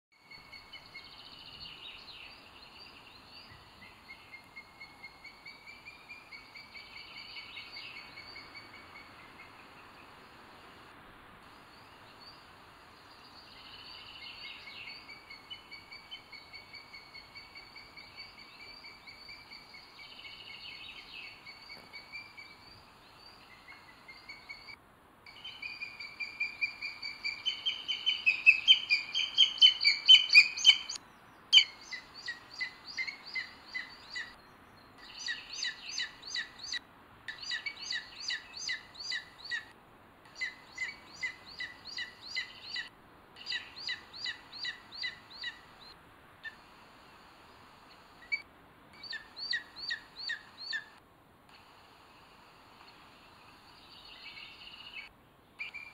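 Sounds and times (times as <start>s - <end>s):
eagles calling: 25.6s - 31.0s.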